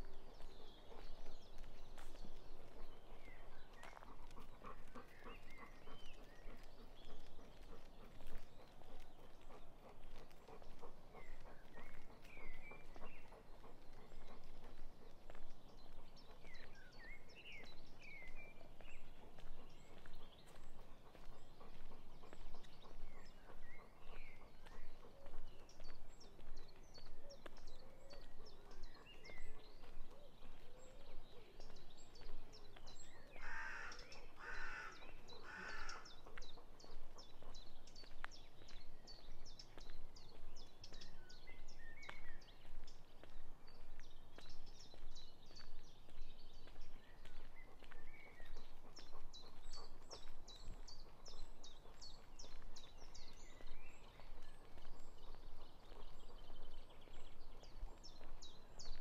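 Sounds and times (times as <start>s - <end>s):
footsteps on a country path: 0.0s - 59.0s
small birds chirping: 0.0s - 59.0s
crow cawing: 33.4s - 36.0s.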